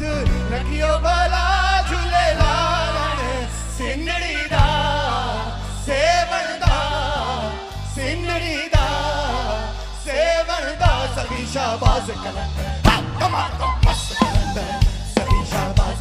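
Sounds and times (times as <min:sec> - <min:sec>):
backing singers: 0:00.0 - 0:16.0
low bass notes: 0:00.0 - 0:16.0
man singing lead: 0:00.0 - 0:16.0
drum hits: 0:12.8 - 0:16.0.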